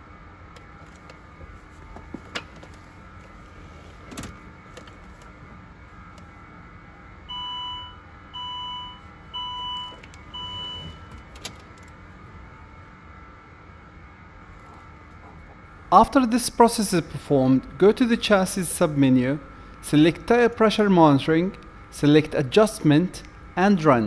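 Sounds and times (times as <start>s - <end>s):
electronic beeps: 7.3s - 11.1s.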